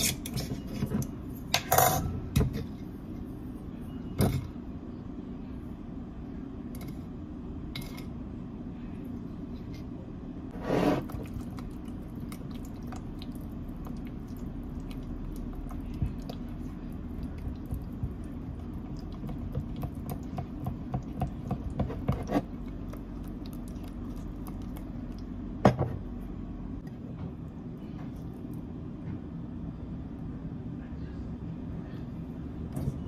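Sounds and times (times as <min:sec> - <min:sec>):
steady low hum: 0:00.0 - 0:33.0
spatula stirring thick dressing: 0:10.6 - 0:25.3.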